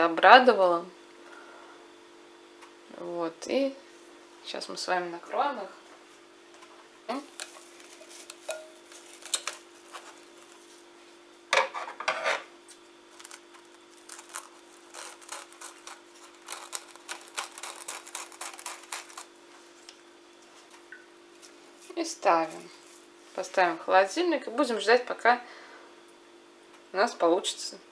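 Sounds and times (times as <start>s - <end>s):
cling film crinkling and rustling: 7.3s - 10.9s, 12.7s - 20.0s.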